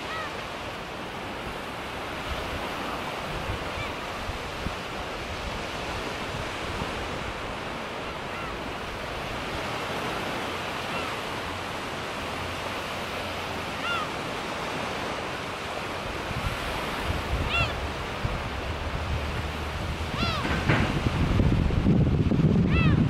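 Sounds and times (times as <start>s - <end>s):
gulls calling: 0.0s - 0.8s, 2.6s - 5.0s, 7.1s - 21.1s, 22.6s - 23.0s
low surf washing onto beach: 0.0s - 23.0s
wind rumble on microphone: 16.1s - 23.0s.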